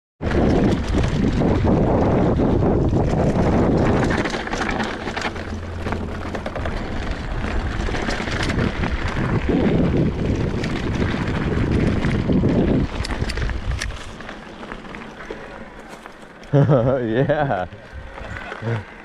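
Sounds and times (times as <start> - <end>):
wind buffeting microphone: 0.2 - 14.3, 16.7 - 18.9
bike clicks and rattles: 0.2 - 19.0
tyres on dirt: 0.2 - 19.0.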